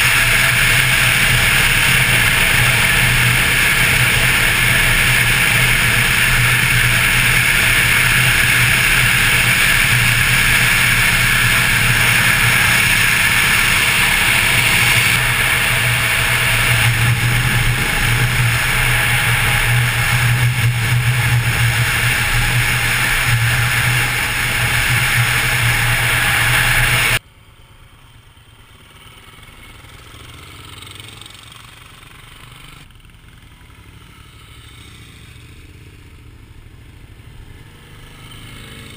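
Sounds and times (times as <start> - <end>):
wind rush: 0.0 - 27.2
distant motorcycle passing: 0.0 - 38.9
motorcycle engine running: 0.0 - 38.9.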